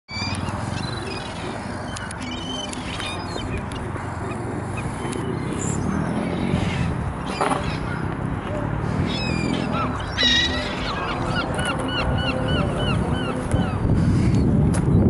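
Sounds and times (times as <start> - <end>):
seagulls calling: 0.1 - 14.5
steady low rumble: 10.8 - 15.0.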